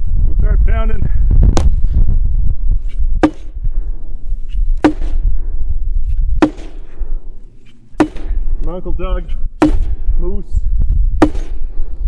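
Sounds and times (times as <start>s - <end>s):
sledgehammer striking log: 3.2s - 3.6s, 4.8s - 5.3s, 6.3s - 7.0s, 8.0s - 8.5s, 9.6s - 10.1s, 11.2s - 11.6s.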